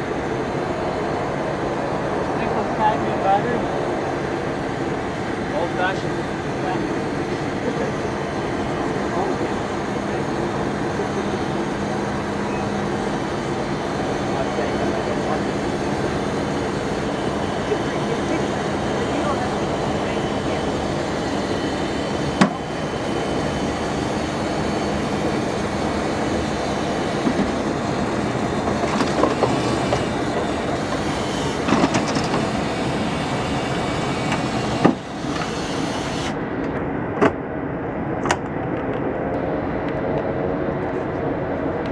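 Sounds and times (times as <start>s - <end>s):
mechanical drone of airstairs: 0.0s - 41.9s.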